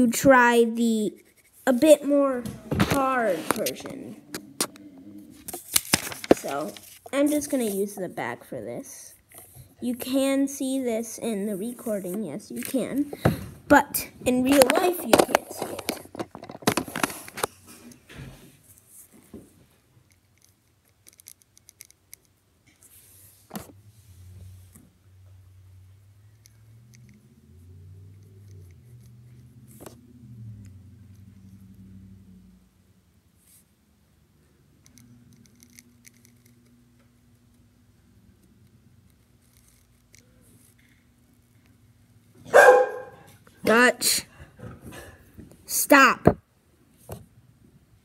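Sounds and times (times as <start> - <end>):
low steady hum: 0.0 - 45.7
paper rustling: 5.4 - 7.8.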